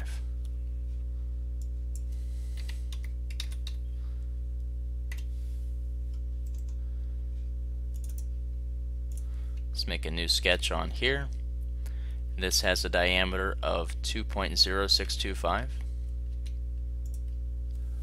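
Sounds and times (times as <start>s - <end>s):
low electrical hum: 0.0s - 18.0s
keyboard keystrokes: 2.6s - 3.8s.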